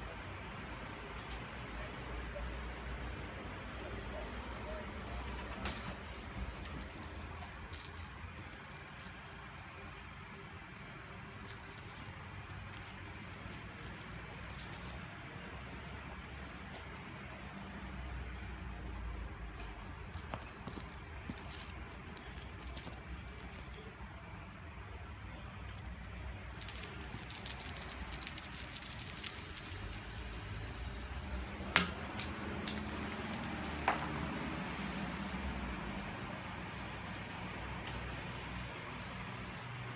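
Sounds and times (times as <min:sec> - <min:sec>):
jingle ball toy rattling: 0:00.0 - 0:00.3, 0:05.7 - 0:15.1, 0:20.1 - 0:36.1, 0:36.8 - 0:38.2.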